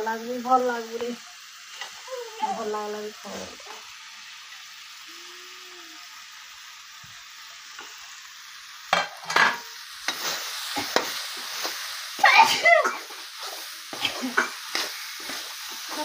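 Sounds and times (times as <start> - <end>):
potatoes sizzling in hot oil: 0.0 - 16.0
metal spatula scraping pan: 9.0 - 11.7, 12.8 - 16.0.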